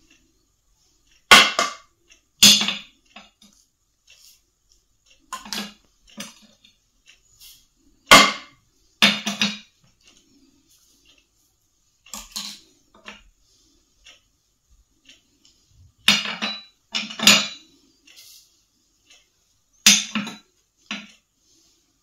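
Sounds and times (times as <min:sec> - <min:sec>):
ceramic dishes clinking: 0:16.1 - 0:17.6.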